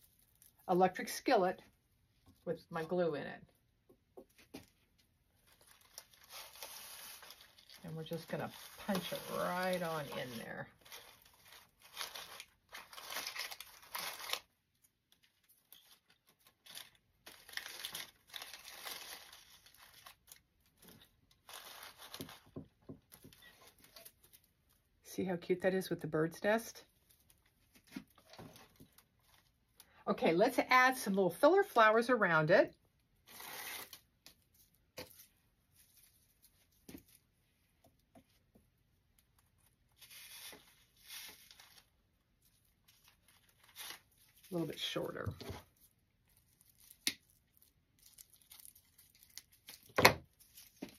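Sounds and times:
dry leaves and stems rustling: 0:05.4 - 0:14.4, 0:15.8 - 0:22.4, 0:39.9 - 0:50.9
stem scratching in vine wreath: 0:06.2 - 0:11.2.

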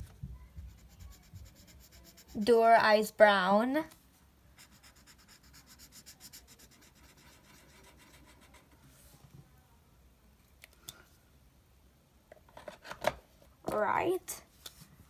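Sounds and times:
marker scribbling on paper: 0:00.6 - 0:02.6, 0:04.6 - 0:08.8.

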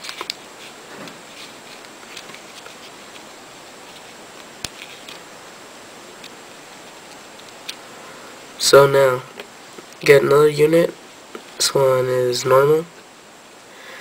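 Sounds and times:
paper rustling and crinkling: 0:00.0 - 0:05.3
steady hiss: 0:00.0 - 0:14.0.

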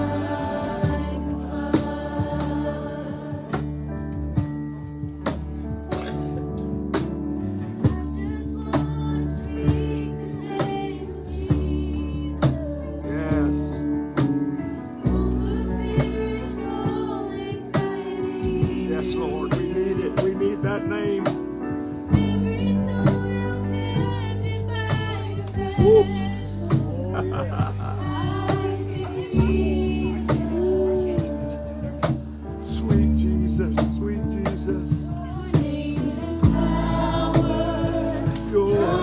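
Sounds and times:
voices singing: 0:00.0 - 0:04.5, 0:07.7 - 0:39.0
cajon beat: 0:00.0 - 0:39.0
live band playing slow song: 0:00.0 - 0:39.0.

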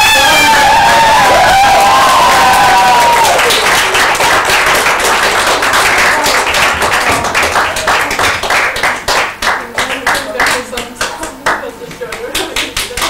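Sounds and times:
high drawn-out whoop: 0:00.0 - 0:03.6
audience applause: 0:00.0 - 0:11.6.

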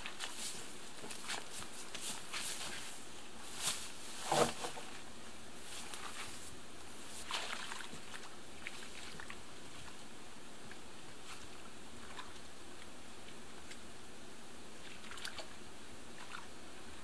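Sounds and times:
footsteps through wet grass: 0:00.0 - 0:05.0, 0:05.6 - 0:09.3.

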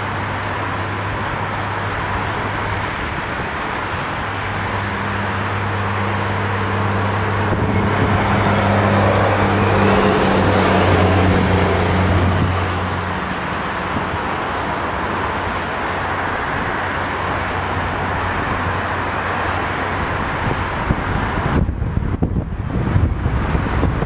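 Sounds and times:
jet engines roaring: 0:00.0 - 0:24.0.

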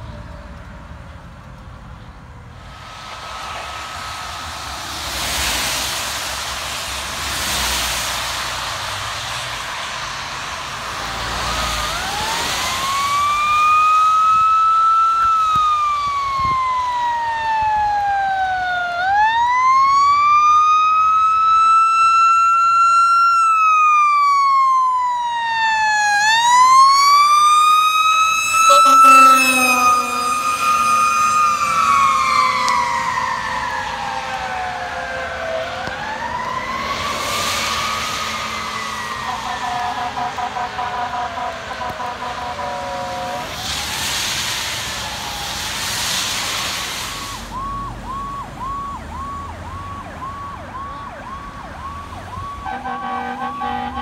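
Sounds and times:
wet tyres hissing: 0:02.4 - 0:14.2, 0:27.2 - 0:48.6
fire truck siren wailing: 0:02.6 - 0:54.0
low horn blast: 0:28.4 - 0:32.0, 0:39.1 - 0:43.5, 0:52.6 - 0:54.0.

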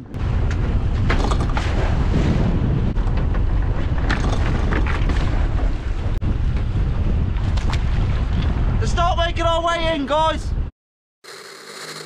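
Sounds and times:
wind rumble on microphone: 0:00.0 - 0:10.7.

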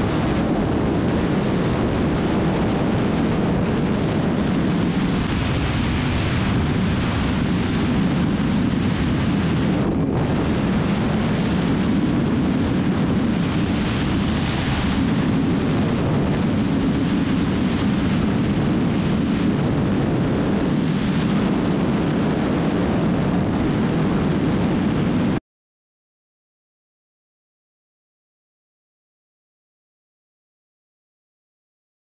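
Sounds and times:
motorcycle engine pulling steadily: 0:00.0 - 0:25.4
wind rushing over microphone: 0:00.0 - 0:25.4.

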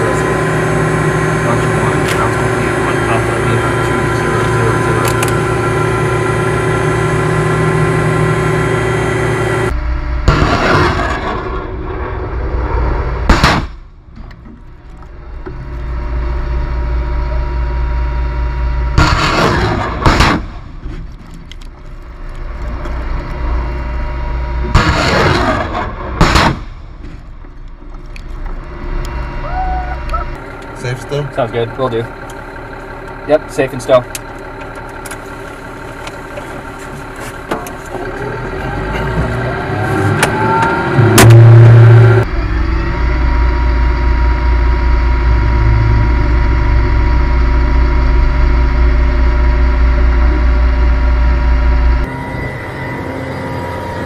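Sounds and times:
truck engine hum: 0:00.0 - 0:54.0
rocket launch blasts: 0:10.2 - 0:14.0, 0:19.0 - 0:20.7, 0:24.7 - 0:26.9.

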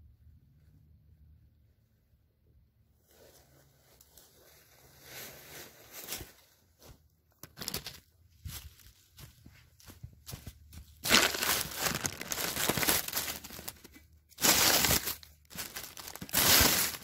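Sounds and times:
footsteps through dry leaves: 0:04.0 - 0:17.0.

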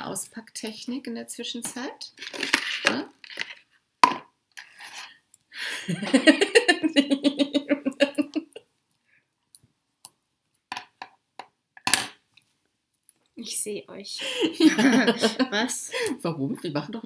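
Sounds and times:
woman laughing: 0:05.6 - 0:08.6, 0:14.2 - 0:16.2.

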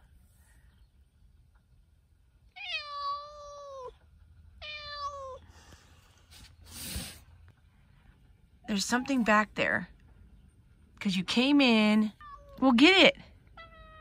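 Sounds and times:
cat meowing: 0:02.6 - 0:04.0, 0:04.6 - 0:05.4, 0:12.2 - 0:12.6, 0:13.6 - 0:14.0.

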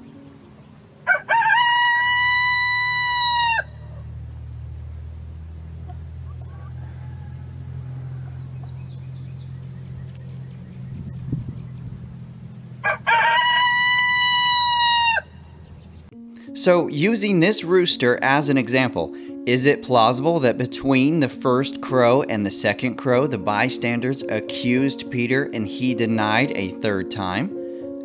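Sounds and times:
rooster crowing: 0:01.0 - 0:04.2, 0:05.9 - 0:09.2, 0:12.8 - 0:15.5.

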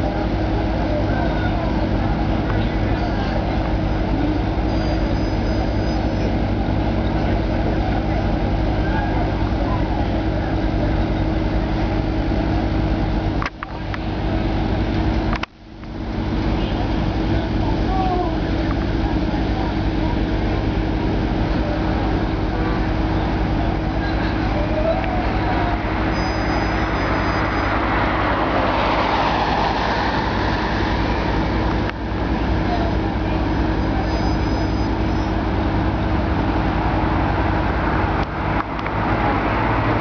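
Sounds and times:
engine idling: 0:00.0 - 0:40.0
road traffic noise: 0:00.0 - 0:40.0.

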